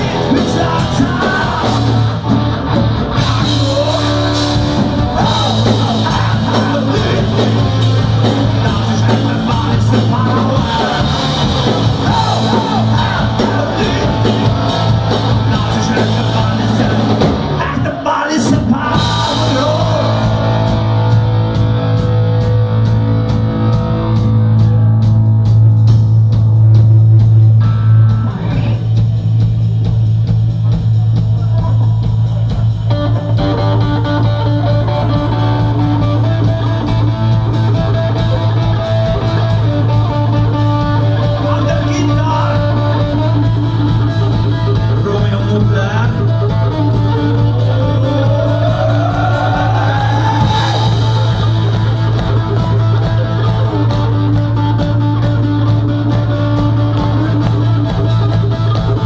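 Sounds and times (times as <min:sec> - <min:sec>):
person singing: 0:00.0 - 0:02.1, 0:03.2 - 0:20.8, 0:47.4 - 0:51.5
hard rock band playing: 0:00.0 - 0:59.0.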